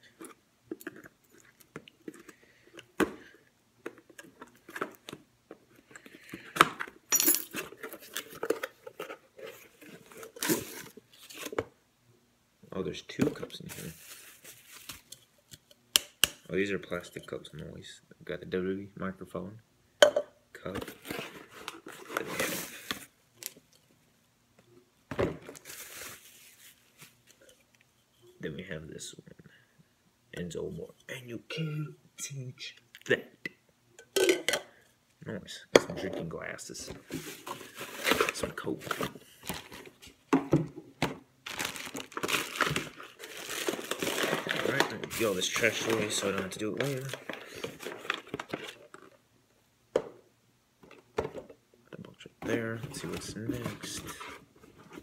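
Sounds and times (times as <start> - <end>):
packaging crinkling: 41.4 - 49.0.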